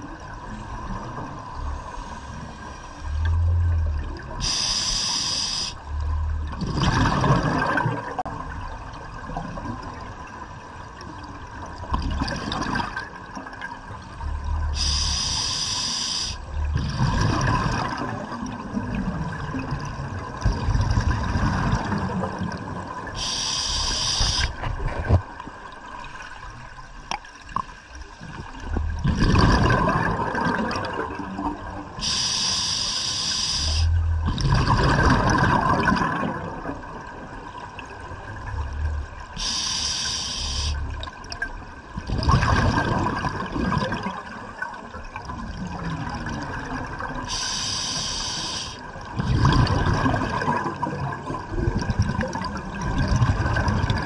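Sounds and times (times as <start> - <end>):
faint steady hum: 0.0 - 54.0
regulator inhale hiss: 4.4 - 5.8, 14.8 - 16.5, 23.2 - 24.6, 32.0 - 34.0, 39.4 - 40.9, 47.3 - 48.9
exhaust bubbles rumbling: 5.9 - 10.0, 16.5 - 23.0, 28.2 - 32.0, 33.8 - 39.4, 41.9 - 44.4, 49.0 - 54.0.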